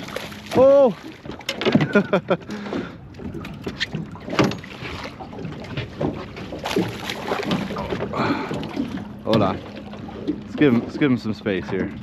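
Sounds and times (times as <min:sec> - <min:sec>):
fish splashing at the surface: 0:06.1 - 0:09.0.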